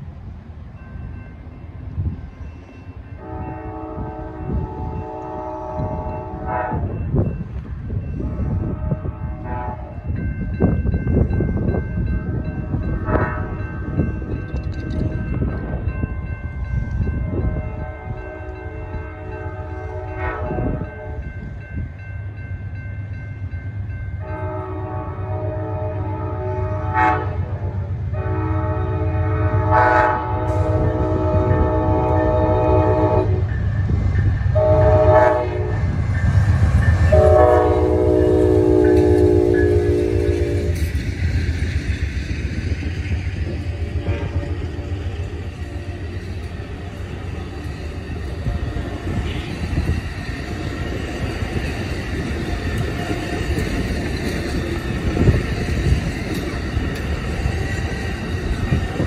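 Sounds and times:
wind rumbling on microphone: 0.0 - 22.0, 26.8 - 59.0
locomotive air horn blast: 3.2 - 6.9, 8.2 - 10.0, 17.7 - 21.2, 24.2 - 33.5, 34.6 - 35.8, 37.1 - 40.8, 44.0 - 44.6, 49.0 - 49.9.

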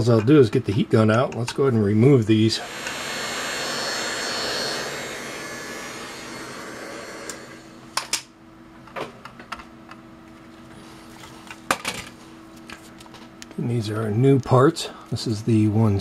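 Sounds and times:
heat gun blowing: 2.3 - 8.2.

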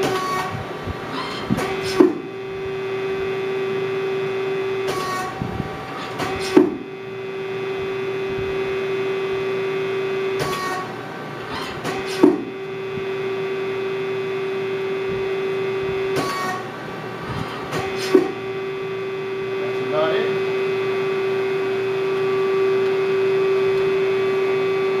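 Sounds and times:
lathe mechanical hum: 0.0 - 25.0
sharp machine clunk: 6.0 - 6.9, 10.4 - 10.9, 11.6 - 12.5, 16.1 - 16.6.

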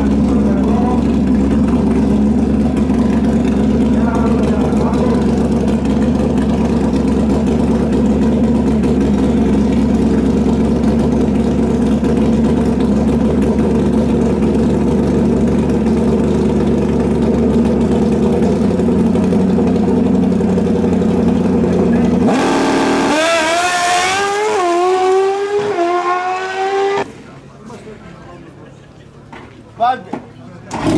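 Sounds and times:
motorcycle engine idling: 0.0 - 22.6.

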